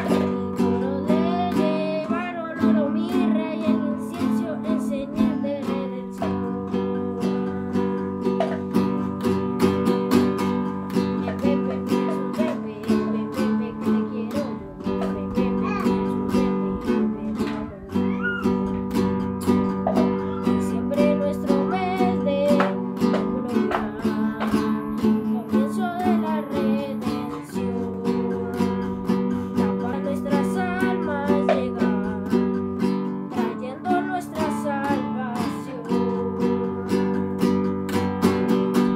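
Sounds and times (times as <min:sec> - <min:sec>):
classical guitar strummed: 0:00.0 - 0:38.9.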